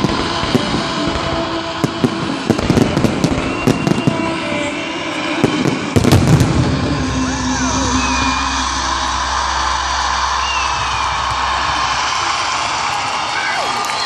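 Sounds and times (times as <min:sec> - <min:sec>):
fireworks bursting with bangs: 0:00.0 - 0:08.2.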